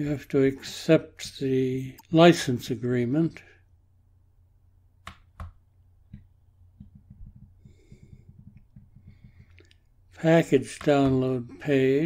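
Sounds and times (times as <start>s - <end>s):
low steady hum: 0.0s - 12.0s
faint soft ticking: 6.1s - 10.1s.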